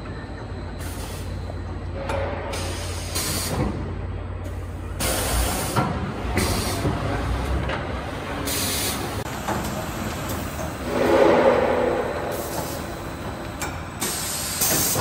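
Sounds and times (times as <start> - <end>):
pneumatic air hiss: 2.6 - 3.6, 6.4 - 6.8, 8.5 - 9.0, 14.0 - 15.0
machine humming: 10.8 - 13.7.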